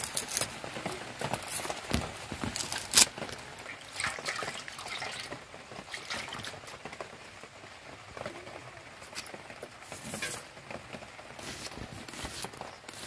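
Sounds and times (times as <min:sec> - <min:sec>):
onion skin crackling: 0:00.0 - 0:05.1, 0:11.4 - 0:13.0
water splashing in bowl: 0:03.3 - 0:07.1.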